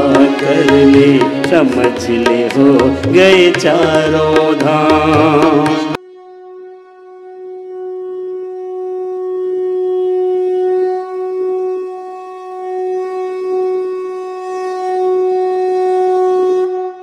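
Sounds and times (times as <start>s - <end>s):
conch shell blown: 5.9s - 17.0s.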